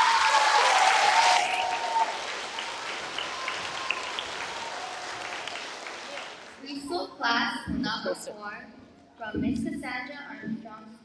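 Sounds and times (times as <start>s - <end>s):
audience applauding: 0.0s - 6.6s.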